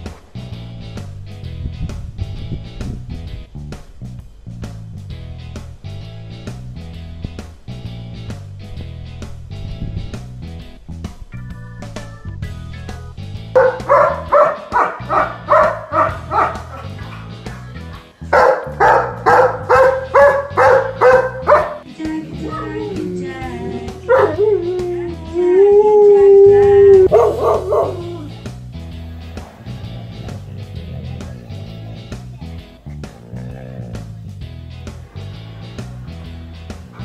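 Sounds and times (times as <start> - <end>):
background music: 0.0 - 37.0
dog howling: 13.6 - 17.0, 18.4 - 21.9, 22.5 - 28.5
dog barking: 13.6 - 17.4, 18.3 - 21.8, 24.1 - 24.4, 27.1 - 28.3.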